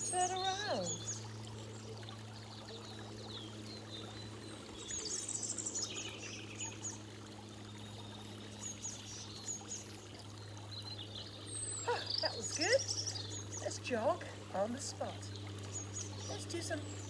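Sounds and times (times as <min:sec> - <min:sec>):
fountain splashing: 0:00.0 - 0:17.0
small birds chirping: 0:00.0 - 0:17.0.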